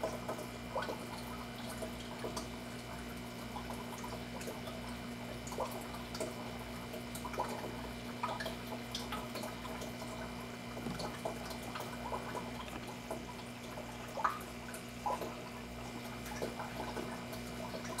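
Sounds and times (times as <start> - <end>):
aquarium water trickling: 0.0 - 18.0
steady hum: 0.0 - 18.0
water drips and splashes: 0.0 - 18.0.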